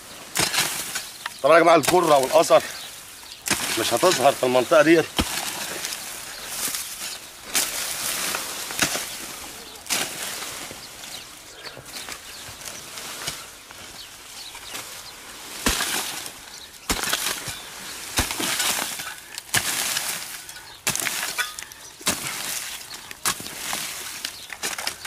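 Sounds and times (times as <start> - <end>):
rustle of dry straw: 0.0 - 25.0
hoe chopping into dry earth: 0.3 - 10.6, 15.5 - 25.0.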